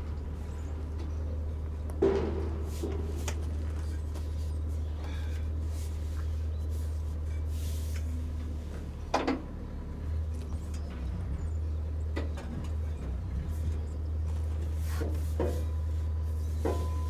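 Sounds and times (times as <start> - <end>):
metal muffler clunk: 1.8 - 4.0
light knocks and scraping: 12.1 - 17.0.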